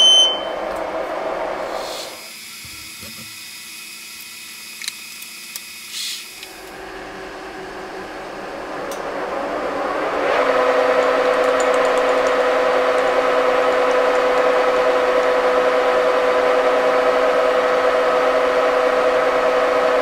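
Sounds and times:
brief hiss: 1.7s - 2.3s
lathe spindle humming: 6.4s - 20.0s.

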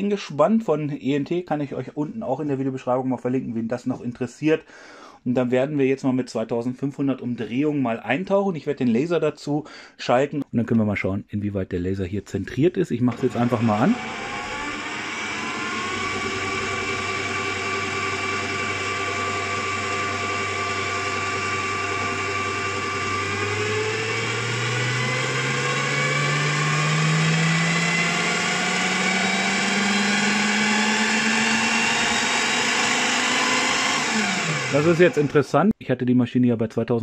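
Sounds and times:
drill press motor running: 13.1s - 35.4s.

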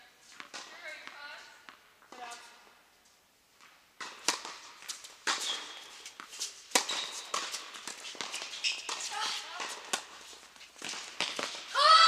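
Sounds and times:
tennis balls struck with rackets: 0.3s - 2.4s, 3.6s - 10.2s, 10.8s - 11.8s
brief high squeaks: 8.4s - 9.1s.

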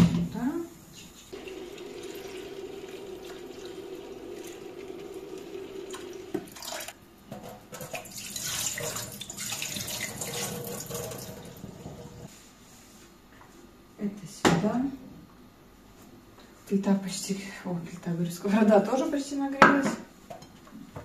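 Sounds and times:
water running from a tap: 1.4s - 7.0s, 7.8s - 12.3s.

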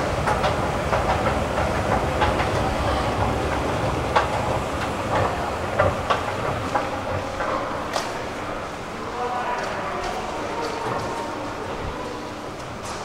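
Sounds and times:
escalator clicks and clacks: 0.0s - 8.6s
escalator rumbling: 0.0s - 9.2s.

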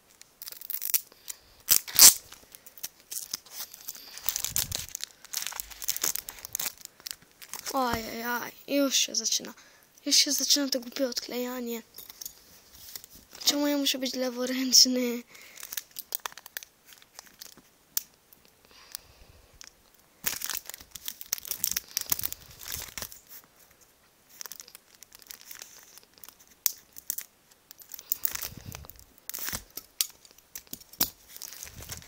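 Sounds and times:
plastic blister pack crinkling: 0.0s - 8.2s, 15.3s - 32.0s.

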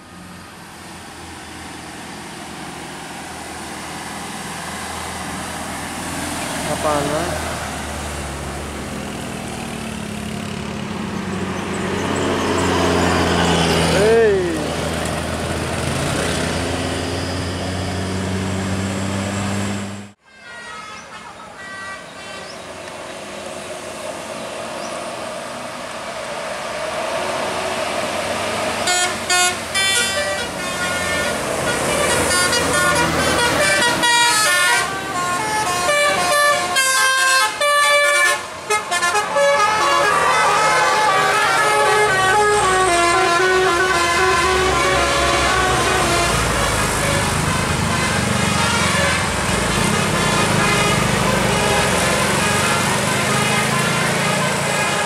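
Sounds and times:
bus engines: 0.0s - 55.0s
traffic: 0.0s - 55.0s
musical bus horn tune: 20.2s - 22.6s, 28.8s - 55.0s.

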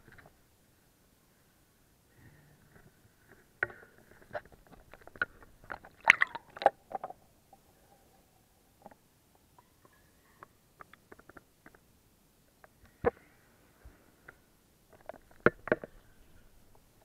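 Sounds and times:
water splashing against camera: 4.8s - 7.2s.

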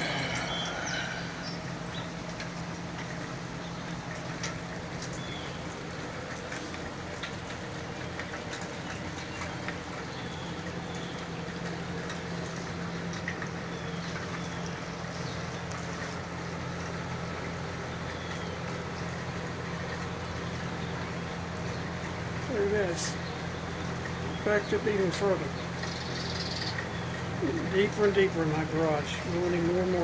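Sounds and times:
faint bird chirps: 0.0s - 2.2s
low hum: 0.0s - 21.9s
runoff water running over gravel: 0.0s - 30.0s
steady rain: 0.0s - 30.0s
water dripping: 0.0s - 30.0s.

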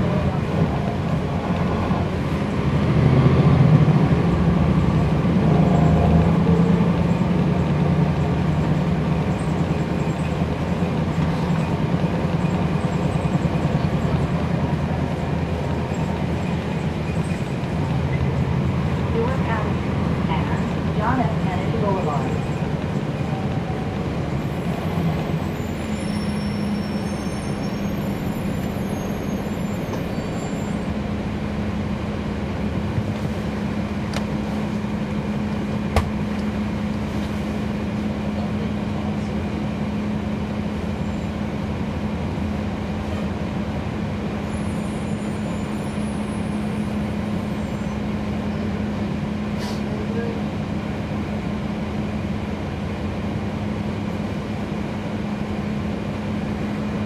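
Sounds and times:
bus engine hum: 0.0s - 57.0s.

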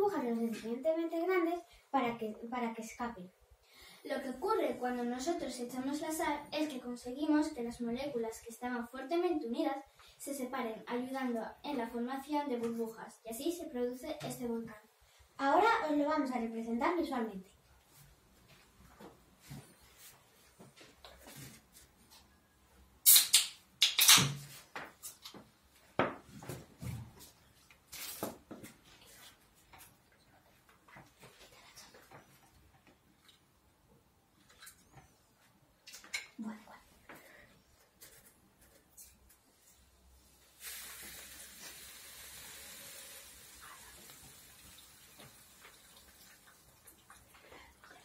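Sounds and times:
soda fizzing and hissing: 40.3s - 47.4s.

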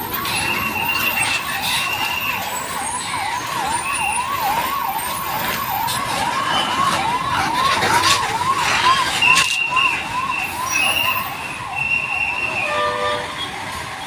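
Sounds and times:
electronic siren warbling: 0.0s - 13.5s
bus engines running: 0.0s - 14.0s.

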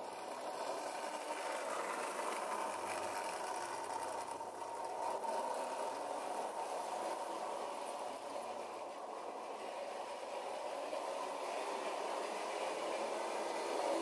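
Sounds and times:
toy train motor whirring: 0.0s - 14.0s
wheels running on metal track: 0.0s - 14.0s.

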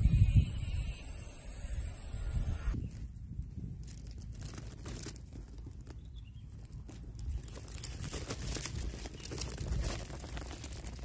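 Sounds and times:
dry grass rustling and crackling: 2.8s - 11.0s.

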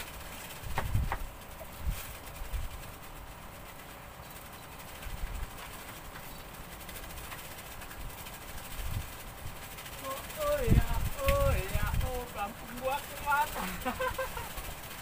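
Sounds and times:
wind buffeting microphone: 0.0s - 3.2s, 7.8s - 14.2s.

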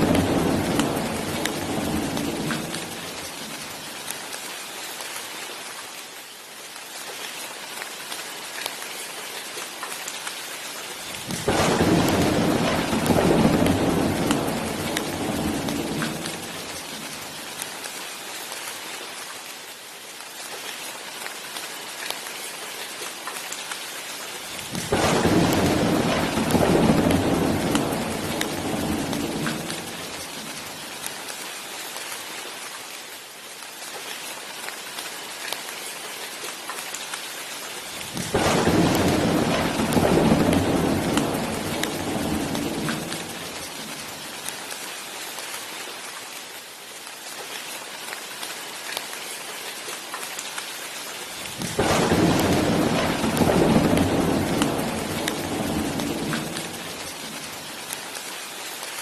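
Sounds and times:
thunder rolling: 0.0s - 3.2s, 11.2s - 16.7s, 24.7s - 30.1s, 38.2s - 43.6s, 51.6s - 57.6s
steady rain: 0.0s - 59.0s.

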